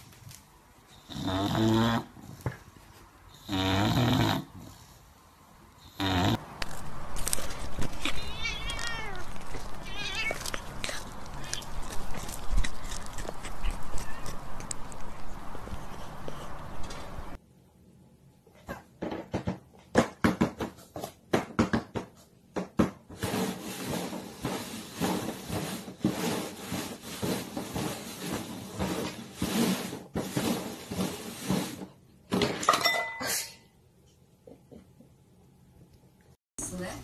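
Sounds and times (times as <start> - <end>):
cups sliding and scraping: 23.2 - 31.9.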